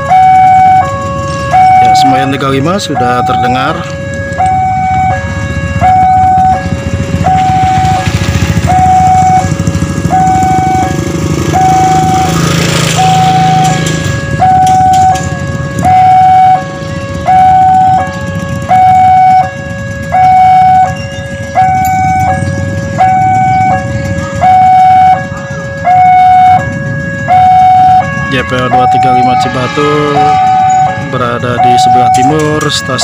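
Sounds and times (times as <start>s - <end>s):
level crossing two-tone alarm: 0.0s - 33.0s.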